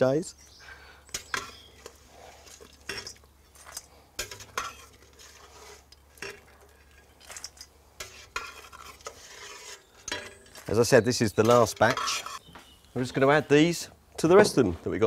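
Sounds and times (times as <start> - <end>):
metal ladle scraping stockpot: 1.2 - 12.5.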